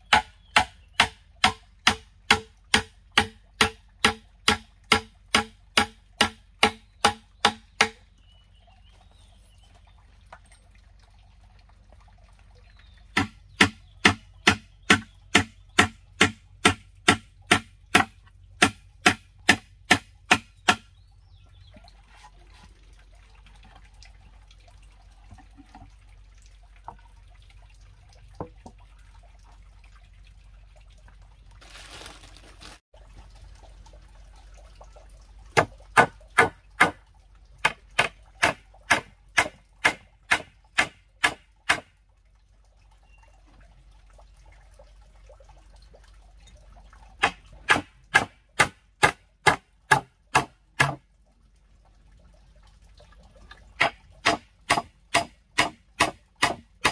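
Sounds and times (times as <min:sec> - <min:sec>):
faint handling sounds: 0:31.5 - 0:32.8.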